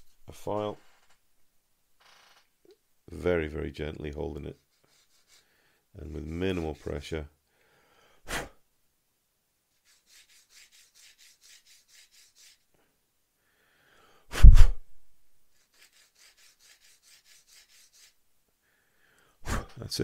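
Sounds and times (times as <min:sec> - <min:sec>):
file rasping on plastic: 0:04.5 - 0:07.1, 0:09.7 - 0:12.7, 0:15.5 - 0:18.2
short puff of air: 0:08.2 - 0:08.6, 0:14.3 - 0:14.9, 0:19.4 - 0:19.8.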